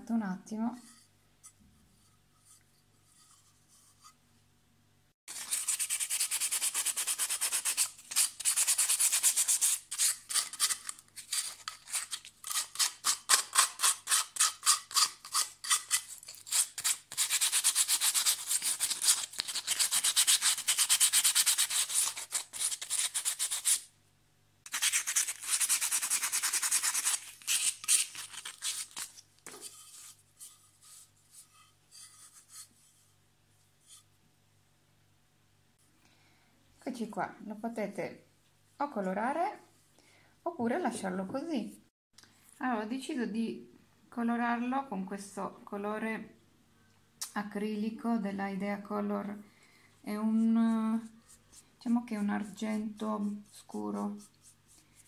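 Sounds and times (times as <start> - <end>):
sandpaper scraping cement: 5.3 - 23.9, 24.7 - 32.8.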